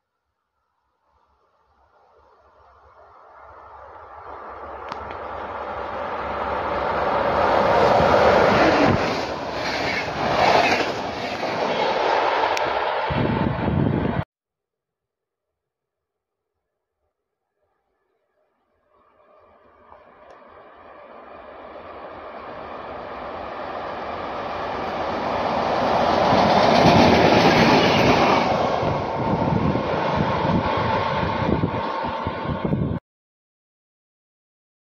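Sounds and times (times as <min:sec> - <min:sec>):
passenger train passing: 0:02.5 - 0:14.2, 0:19.1 - 0:33.0
clickety-clack of wheels over rail joints: 0:04.2 - 0:13.0, 0:21.6 - 0:32.3.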